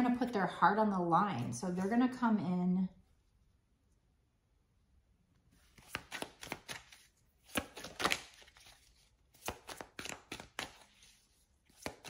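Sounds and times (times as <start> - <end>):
cards being shuffled: 5.6 - 12.0.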